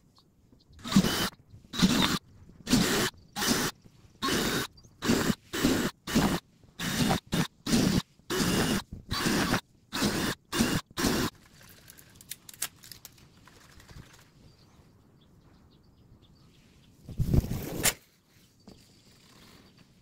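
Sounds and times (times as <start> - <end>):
cordless drill bursts: 0.8 - 11.3.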